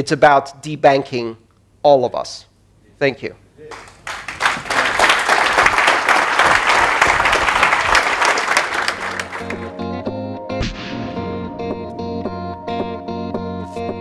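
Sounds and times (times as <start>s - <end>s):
audience clapping: 3.6s - 9.8s
guitar music: 9.4s - 14.0s.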